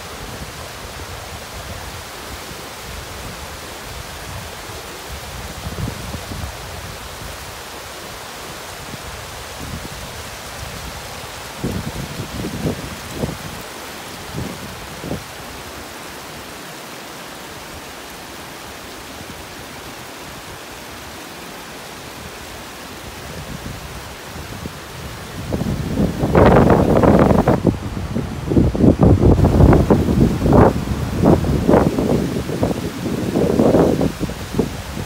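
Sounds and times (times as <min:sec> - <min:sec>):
water rushing over rocks: 0:00.0 - 0:35.0
wind buffeting microphone: 0:08.8 - 0:15.4, 0:23.0 - 0:35.0.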